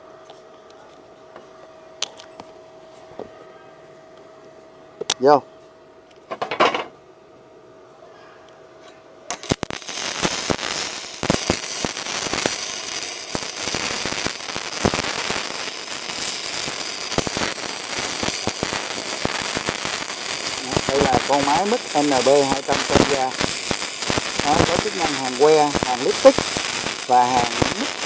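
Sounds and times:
welding arc crackling and spattering: 9.3 - 28.0
welding arc popping: 9.3 - 28.0.

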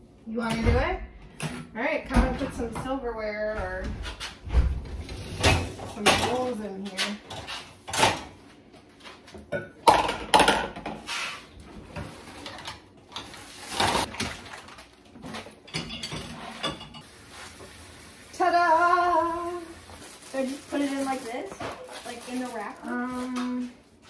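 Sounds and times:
dishes clattering in dishwasher: 3.6 - 8.4, 9.3 - 11.1, 15.2 - 17.1.

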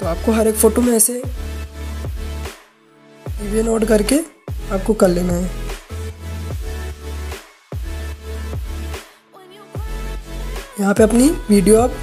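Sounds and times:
electronic dance music: 3.4 - 9.1, 9.8 - 12.0.

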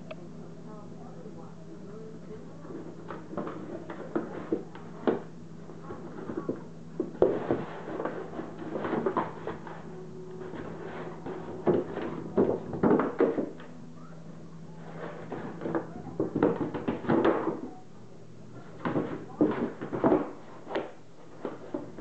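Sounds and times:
cardboard box scraping on wooden floor: 5.8 - 13.6, 14.8 - 17.5.

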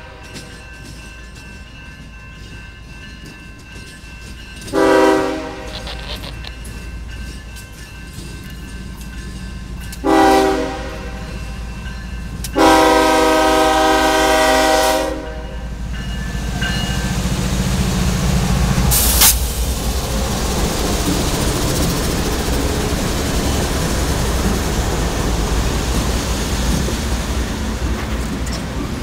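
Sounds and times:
freight train rumbling past: 0.0 - 29.0
locomotive horn blasts: 4.7 - 6.6, 10.0 - 11.6, 12.6 - 15.7.

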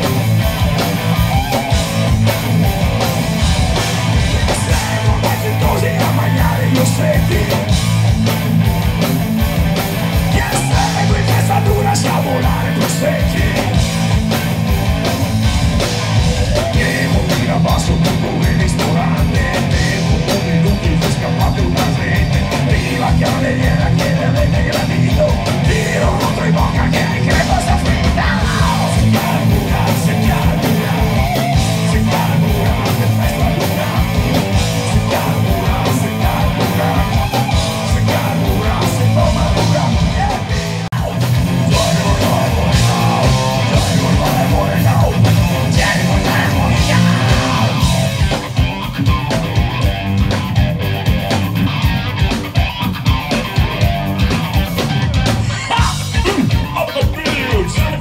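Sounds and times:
live punk band playing: 0.0 - 58.0
shouted vocal: 41.9 - 47.9, 55.4 - 58.0.

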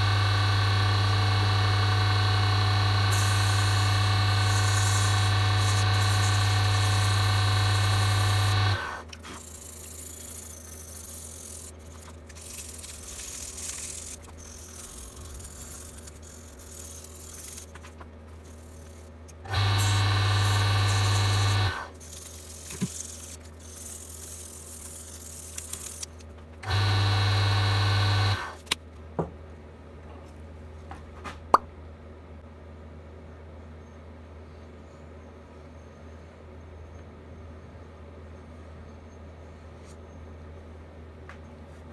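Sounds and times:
wood lathe motor humming: 0.0 - 9.0, 19.5 - 21.9, 26.6 - 28.5.

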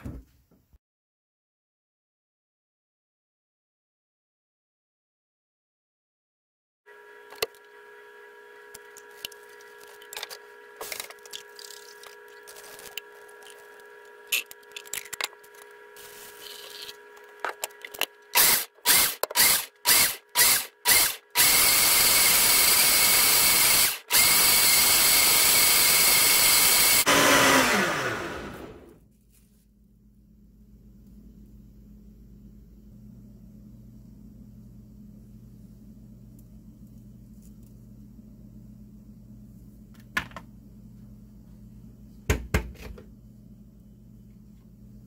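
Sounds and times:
blender grinding: 6.9 - 29.0.

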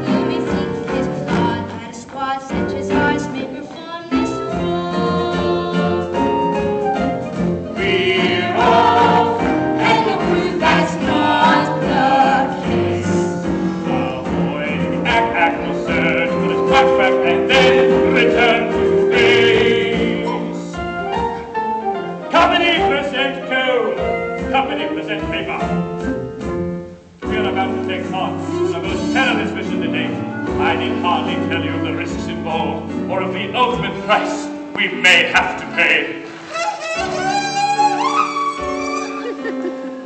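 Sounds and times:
cast singing together: 0.0 - 21.2
instrumental accompaniment: 0.0 - 40.0.

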